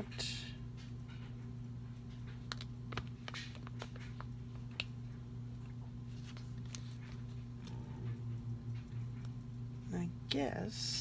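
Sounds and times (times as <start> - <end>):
steady low hum: 0.0 - 11.0
paper rustling: 6.1 - 7.5.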